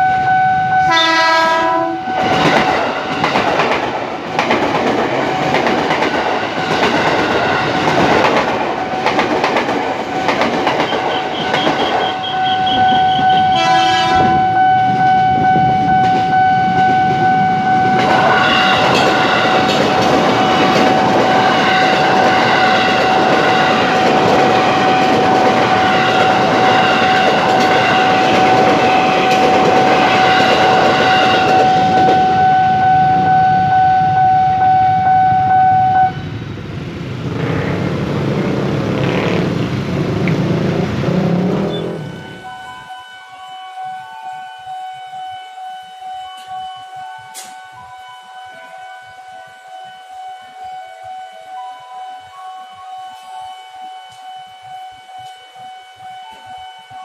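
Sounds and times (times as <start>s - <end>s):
train horn: 0.0s - 3.0s, 10.7s - 36.4s, 41.4s - 57.0s
crossing alarm tone: 0.0s - 36.4s, 40.4s - 57.0s
train passing with wheel clatter: 0.0s - 43.0s, 45.9s - 53.4s.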